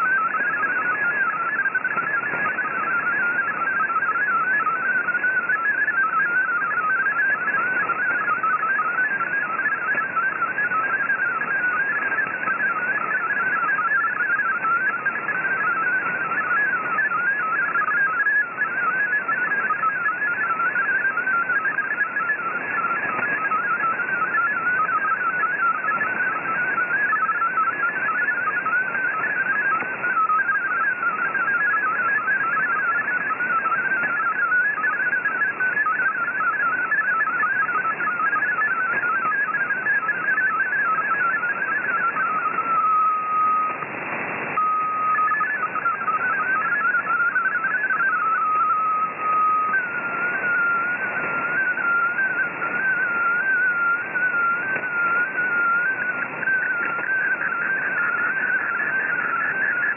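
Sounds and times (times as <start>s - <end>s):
digital data signal warbling tones: 0.0s - 59.9s
radio band hiss: 0.0s - 59.9s.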